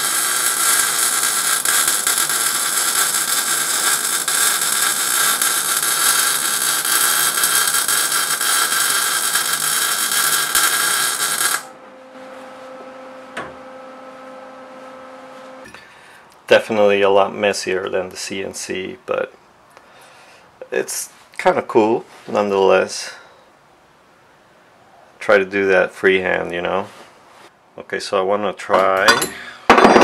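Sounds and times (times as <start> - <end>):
welder arc burning: 0.0 - 11.8.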